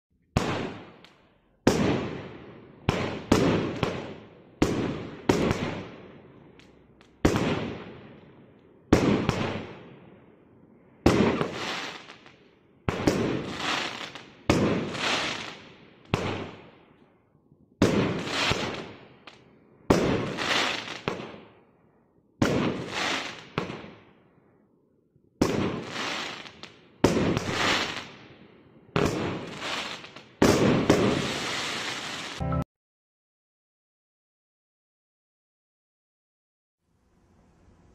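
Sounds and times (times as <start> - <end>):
firework shots banging: 0.4 - 1.0.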